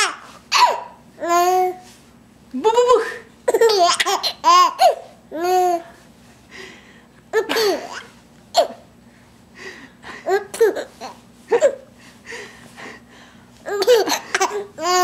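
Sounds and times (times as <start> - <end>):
baby laughing: 3.5 - 5.8, 7.3 - 8.8, 10.2 - 11.9, 13.7 - 15.0.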